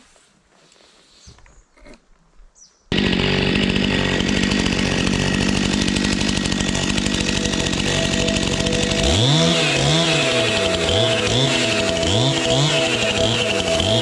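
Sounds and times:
chainsaw engine running and revving: 2.9 - 14.0.

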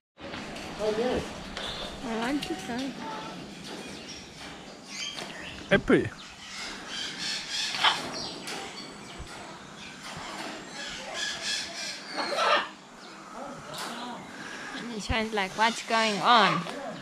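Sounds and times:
parrots squawking: 6.4 - 8.2, 10.3 - 12.8, 15.4 - 16.7.

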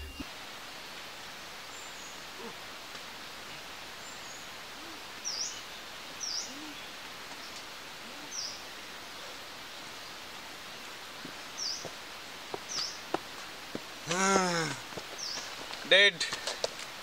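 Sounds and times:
steady hiss: 0.0 - 17.0
faint low hooting calls: 14.0 - 14.9.

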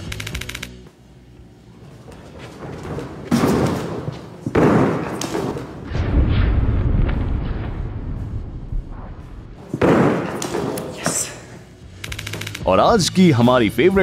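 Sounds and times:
heavy thuds on padded floor: 2.4 - 5.9
low rumble: 5.9 - 9.6.

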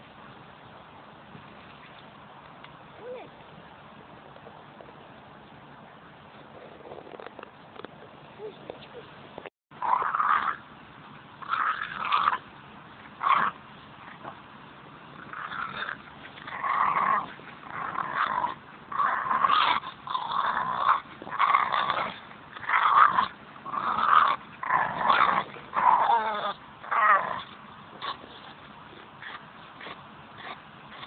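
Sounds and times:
dog growling: 15.2 - 31.0.

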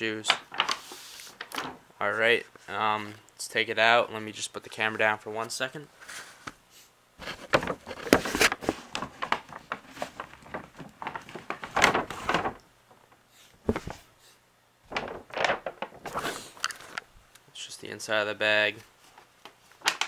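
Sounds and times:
paper bag rustling: 0.5 - 1.7, 7.2 - 12.6, 14.9 - 17.0.

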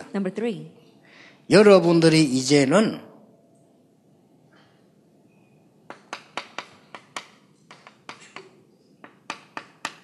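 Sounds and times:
chalk tapping on chalkboard: 5.9 - 10.0.

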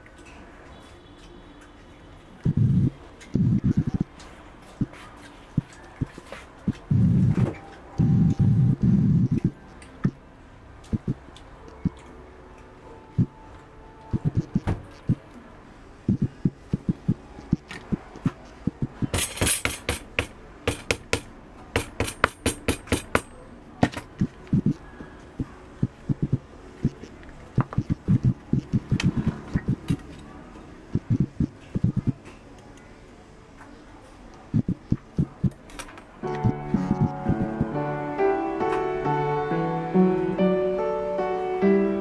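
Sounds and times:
tools knocking on stone slab: 19.1 - 24.1.

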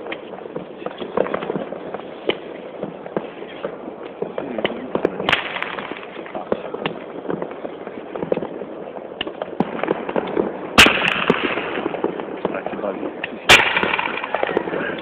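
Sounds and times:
firework fountain spraying: 0.0 - 15.0
fireworks crackling and popping: 0.0 - 15.0.

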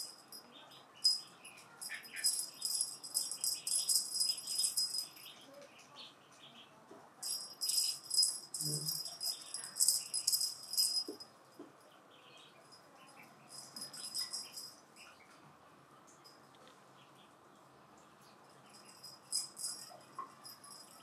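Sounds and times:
cat toy rattling: 1.0 - 5.3, 7.2 - 11.2, 13.5 - 14.8, 18.8 - 21.0.

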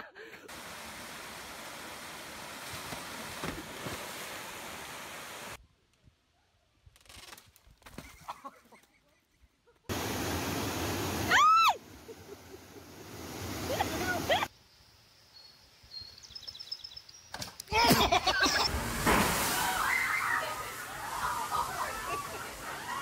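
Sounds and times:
rushing waterfall: 0.5 - 5.6, 9.9 - 14.5, 18.5 - 23.0.

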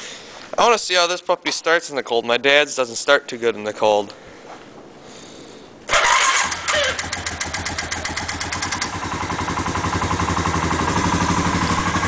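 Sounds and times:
atv engine starting and idling: 5.9 - 12.0.

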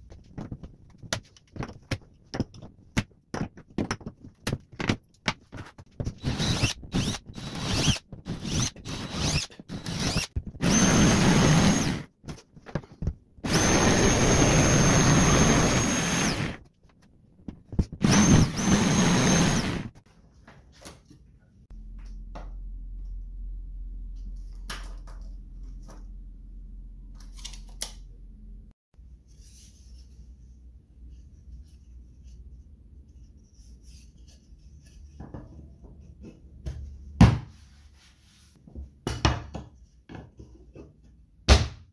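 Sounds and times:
electric jigsaw whining: 6.2 - 12.1, 13.4 - 16.6, 18.0 - 20.0.

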